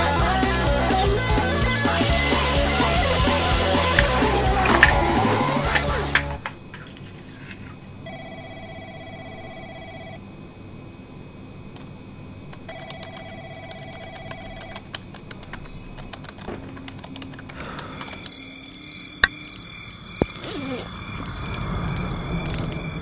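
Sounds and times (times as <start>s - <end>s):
telephone electronic trilling ring: 8.0s - 10.2s, 12.7s - 14.8s.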